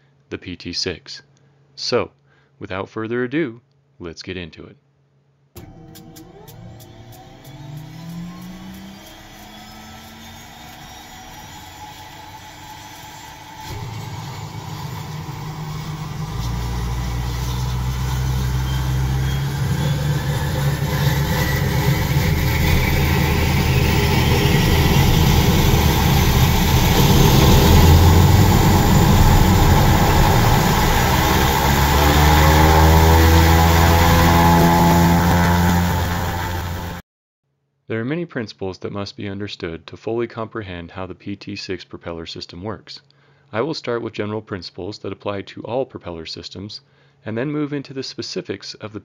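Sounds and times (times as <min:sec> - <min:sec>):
turbine engine whine spooling up: 0:05.6 - 0:37.0
deep engine rumble: 0:13.6 - 0:37.0.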